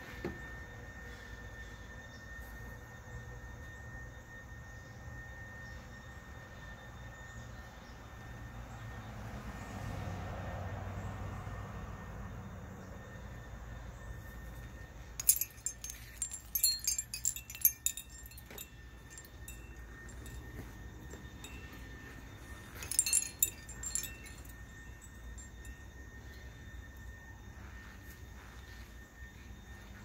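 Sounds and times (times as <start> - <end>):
glass wind chimes clinking: 15.2 - 25.9.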